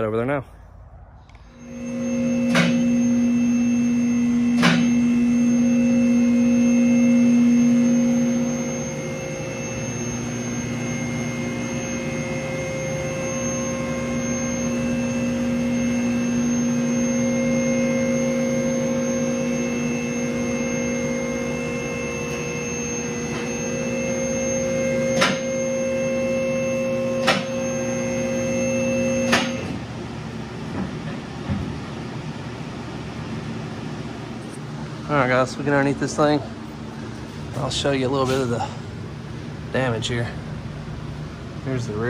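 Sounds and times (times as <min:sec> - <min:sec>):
machine hum: 0:00.0 - 0:42.0.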